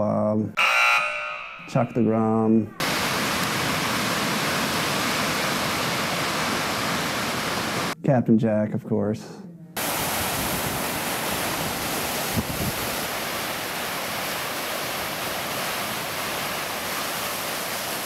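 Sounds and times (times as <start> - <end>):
lake waves breaking: 2.8 - 8.0, 9.8 - 18.0
wind on microphone: 9.8 - 13.2.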